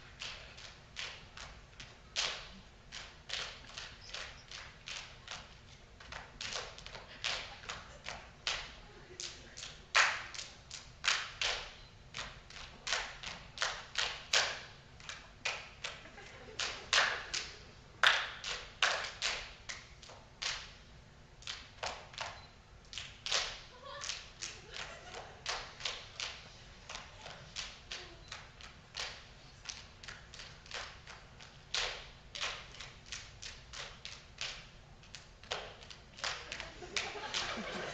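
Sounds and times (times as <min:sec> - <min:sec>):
body percussion claps and slaps: 0:00.2 - 0:16.0, 0:16.6 - 0:20.8, 0:21.4 - 0:37.5.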